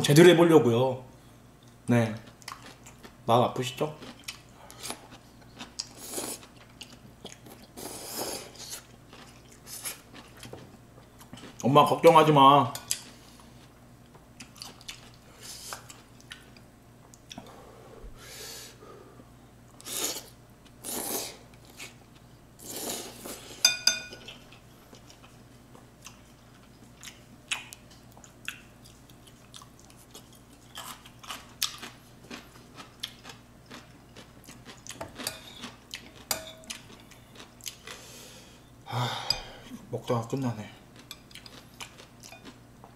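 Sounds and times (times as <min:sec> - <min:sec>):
chewing: 0:01.6 - 0:03.1, 0:04.0 - 0:10.6, 0:14.4 - 0:17.5, 0:24.2 - 0:38.0, 0:41.0 - 0:42.6
person slurping noodles: 0:07.8 - 0:08.9, 0:19.8 - 0:21.4
spoon clinking on glass: 0:23.7 - 0:24.2.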